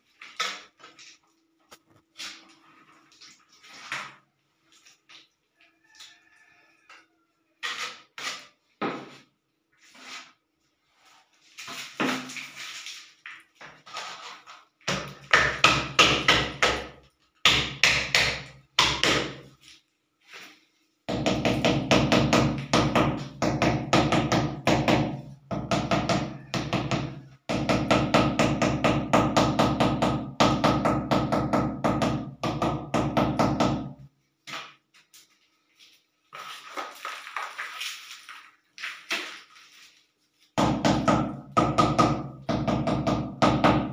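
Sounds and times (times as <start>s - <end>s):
trowel knocks and scrapes: 7.6s - 9.3s.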